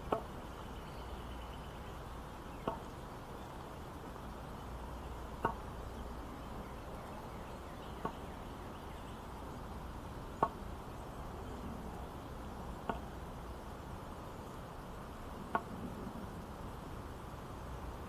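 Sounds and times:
walking stick tapping on bricks: 0.0s - 0.3s, 2.6s - 2.8s, 12.8s - 13.1s, 15.5s - 15.7s.

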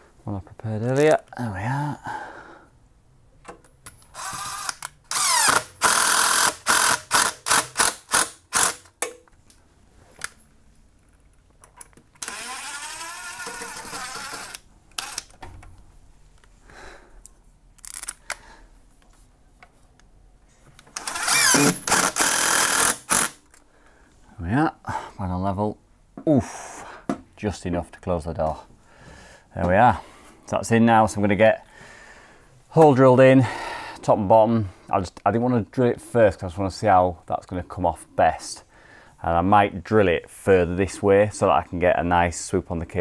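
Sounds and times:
impact driver driving screws: 4.1s - 8.9s, 12.2s - 15.4s, 21.0s - 23.4s.

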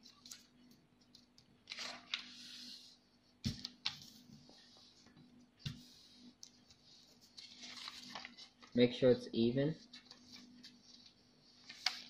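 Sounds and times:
paper rustling on wood: 6.7s - 8.8s, 9.8s - 12.0s.

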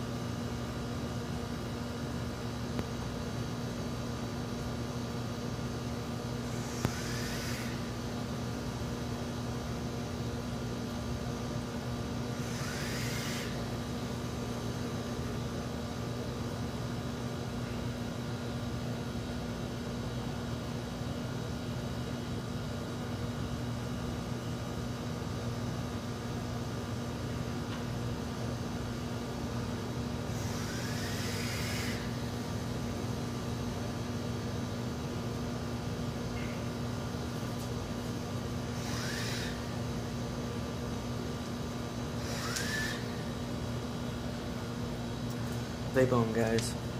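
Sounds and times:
electrical hum: 0.0s - 46.9s
vape hissing with whistle: 6.5s - 7.8s, 12.5s - 13.6s, 38.8s - 39.6s, 42.2s - 43.2s.

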